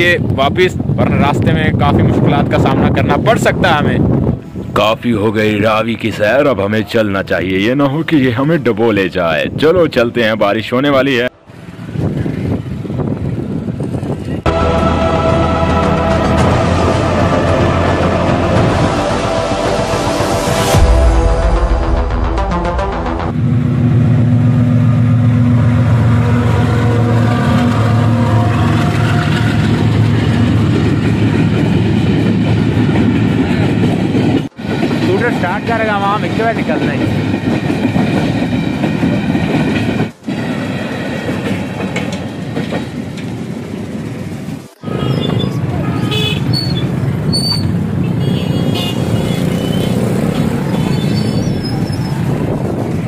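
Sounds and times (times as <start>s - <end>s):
diesel locomotive engine drone: 11.1s - 53.0s
freight wagons rumbling by: 23.4s - 53.0s
short horn toots: 44.8s - 46.8s.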